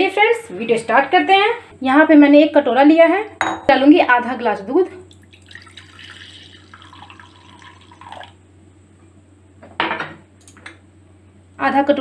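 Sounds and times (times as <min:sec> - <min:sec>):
milk pouring into a bowl: 0:05.1 - 0:08.4.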